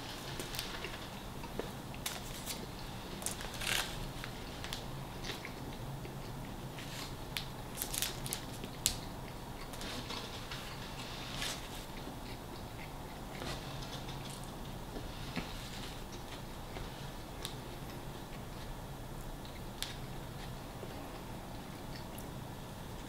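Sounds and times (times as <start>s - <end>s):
person chewing food: 0.6s - 18.8s.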